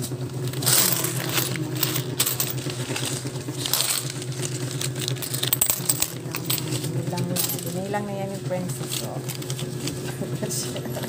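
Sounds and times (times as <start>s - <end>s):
coins clinking: 0.0s - 11.0s.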